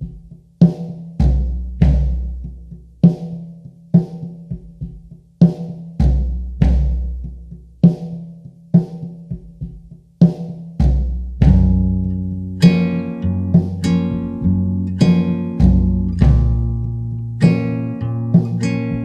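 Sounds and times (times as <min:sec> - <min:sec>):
sparse drum kit hits: 0:09.3 - 0:19.0.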